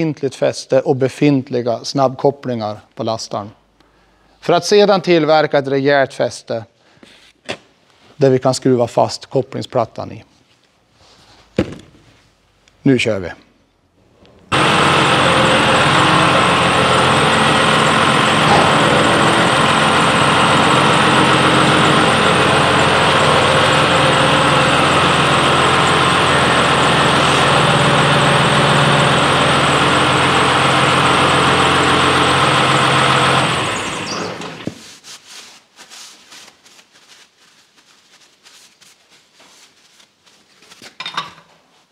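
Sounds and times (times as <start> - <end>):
tractor diesel engine running: 14.4 - 34.6.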